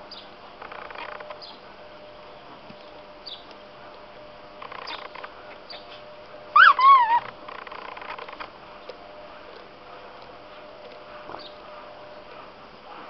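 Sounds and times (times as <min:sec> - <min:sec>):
squeaky toy squeaking: 0:06.6 - 0:07.3.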